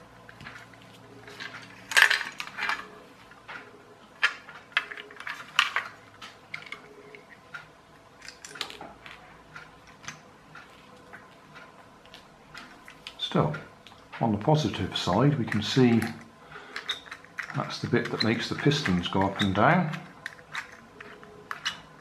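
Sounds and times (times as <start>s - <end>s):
plastic toy parts clattering: 0.5s - 2.9s, 4.2s - 6.9s, 8.2s - 9.2s, 15.5s - 22.0s.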